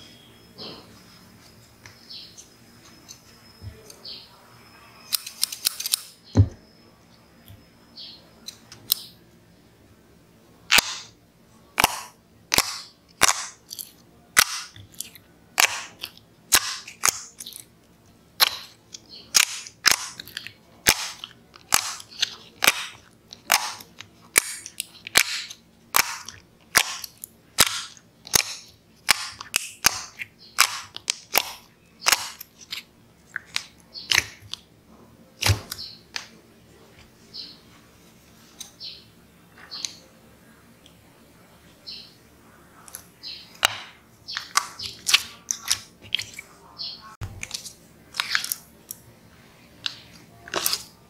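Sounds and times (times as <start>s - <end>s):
fingers popping wet slime: 11.8s - 13.8s, 14.4s - 17.5s, 19.3s - 32.4s, 33.3s - 34.6s.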